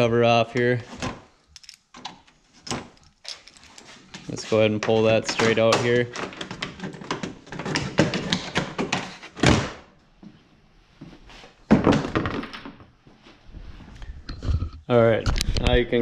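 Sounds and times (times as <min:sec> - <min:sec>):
plastic cover clicking and rattling: 0:05.2 - 0:09.1.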